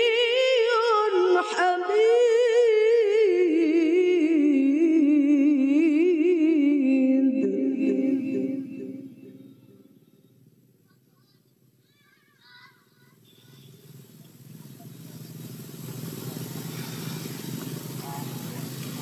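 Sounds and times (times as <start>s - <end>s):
woman reciting melodically: 0.0s - 9.9s.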